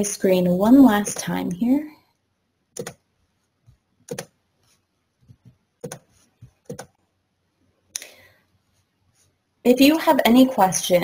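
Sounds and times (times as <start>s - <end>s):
computer mouse clicks: 2.7s - 3.0s, 4.1s - 4.4s, 5.3s - 7.0s.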